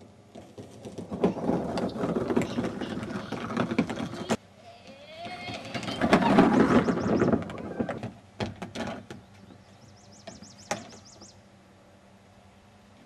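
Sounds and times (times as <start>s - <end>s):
plastic clacks and knock: 0.3s - 4.4s, 5.2s - 9.2s
toy car wheels rumbling on track: 0.4s - 4.4s, 5.2s - 8.1s
small bird chirping: 9.2s - 11.4s.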